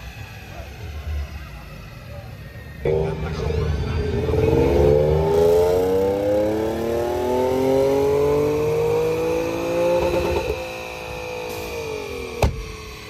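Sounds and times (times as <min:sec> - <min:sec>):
car engine accelerating: 0:02.8 - 0:13.0.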